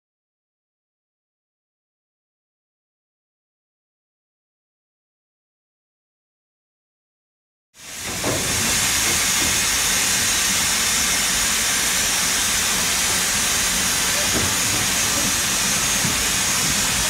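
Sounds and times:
steam locomotive hissing steam: 7.8 - 17.0.

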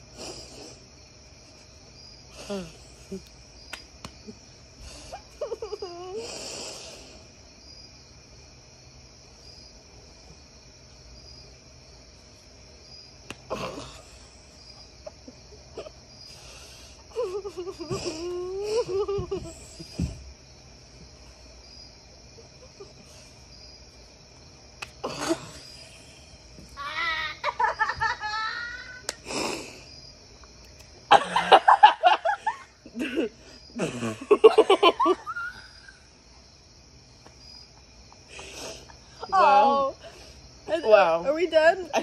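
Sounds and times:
crickets chirping: 0.0 - 42.0
tortilla slapping a face: 3.1 - 4.4, 13.2 - 13.8, 24.7 - 25.4, 29.0 - 29.4
stifled laughter: 5.0 - 6.2, 17.1 - 20.2, 27.0 - 28.9.

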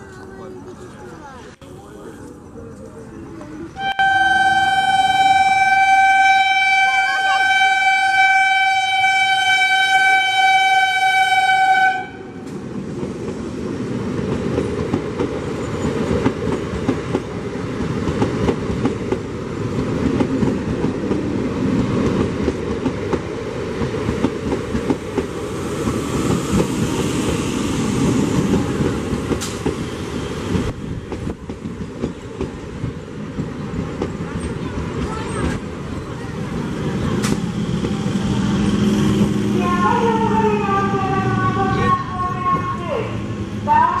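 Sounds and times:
train rumbling past: 0.0 - 44.0
train horn: 3.8 - 12.5.

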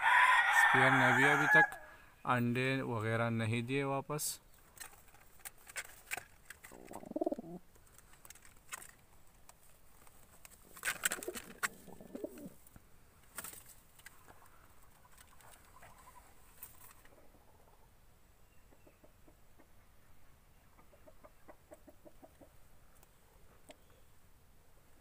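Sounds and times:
pigeons cooing: 6.6 - 7.7, 10.9 - 12.6.

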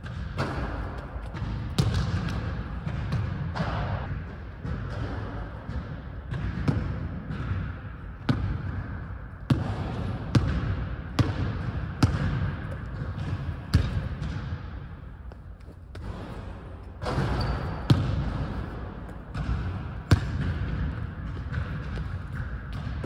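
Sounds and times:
basketball bouncing on hardwood: 0.0 - 3.8, 9.5 - 23.0.

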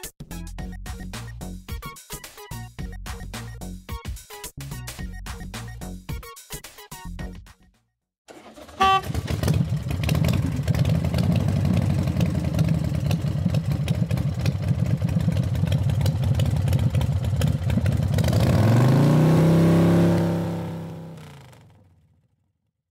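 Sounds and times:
engine revving: 8.3 - 21.8.

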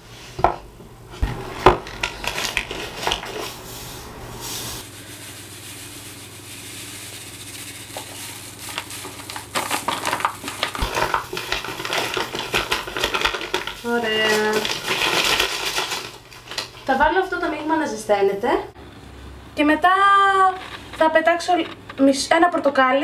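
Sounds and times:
paper bag rustling: 1.3 - 17.2
sugar pouring into water: 4.5 - 16.2.

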